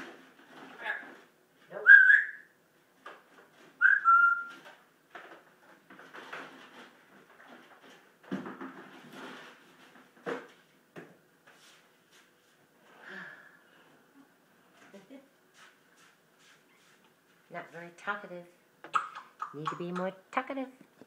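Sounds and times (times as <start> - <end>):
parrot whistling: 1.8 - 2.5, 3.8 - 4.5.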